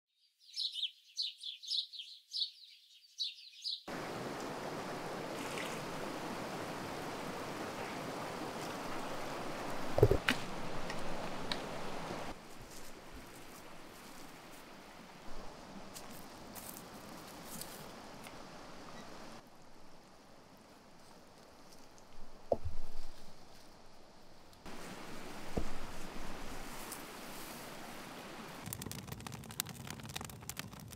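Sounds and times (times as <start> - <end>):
small bird chirping: 0.2 - 3.9
shallow rocky stream running: 3.9 - 23.9, 24.6 - 29.0
water splashing from hands: 4.3 - 12.2.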